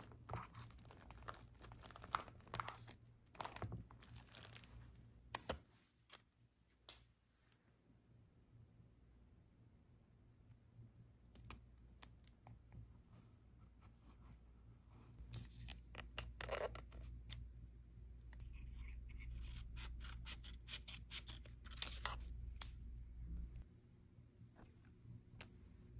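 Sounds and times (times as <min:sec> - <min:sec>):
scissors snipping paper: 0:19.2 - 0:22.7.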